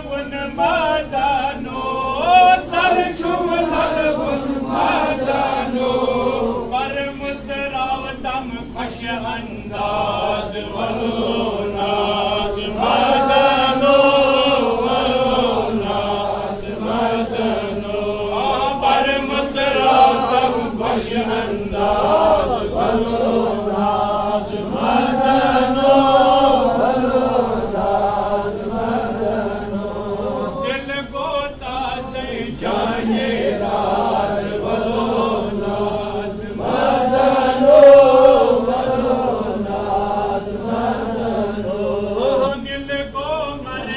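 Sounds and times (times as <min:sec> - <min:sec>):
man chanting: 0:00.0 - 0:04.6, 0:06.6 - 0:16.8, 0:30.3 - 0:33.7, 0:41.8 - 0:43.9.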